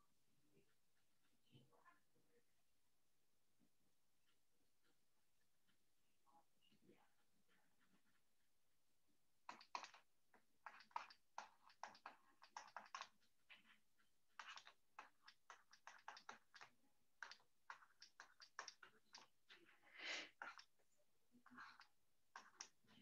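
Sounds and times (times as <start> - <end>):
stylus tapping and scratching on tablet: 9.4 - 23.0.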